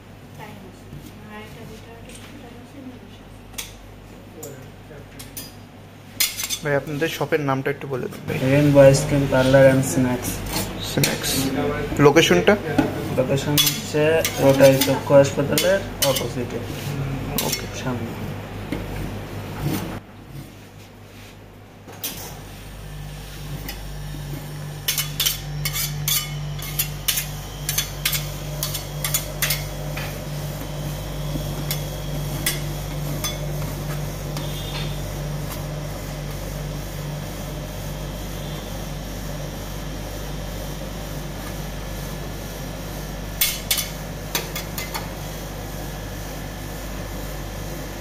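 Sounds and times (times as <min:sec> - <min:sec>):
steady low hum: 0:00.0 - 0:48.0
metal spatula tapping and scraping: 0:24.9 - 0:29.7, 0:43.4 - 0:45.1.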